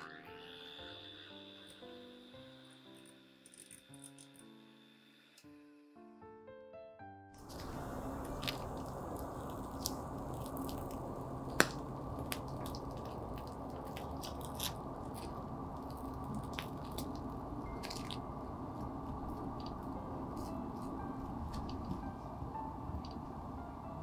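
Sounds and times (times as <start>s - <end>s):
steady low hiss: 7.4s - 13.9s.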